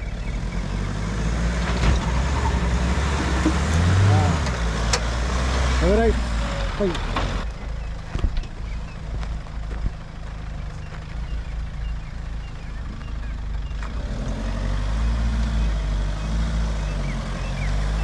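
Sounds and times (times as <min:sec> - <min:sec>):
engine revving: 0:00.0 - 0:07.5, 0:11.5 - 0:18.0.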